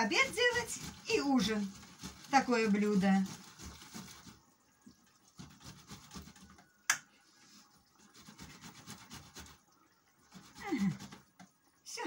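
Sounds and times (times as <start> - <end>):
tomatoes grated on metal grater: 0.0 - 4.5, 5.2 - 6.6, 8.0 - 11.3.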